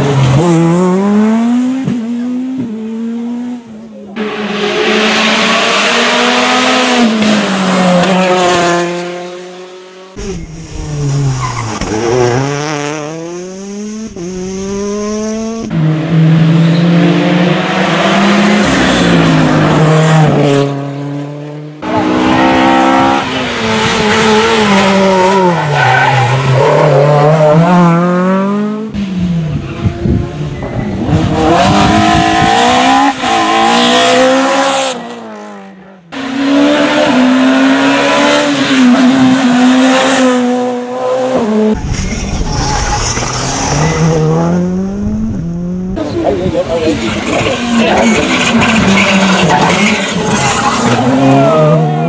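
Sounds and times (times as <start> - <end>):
rally car engines accelerating: 0.0 - 52.0.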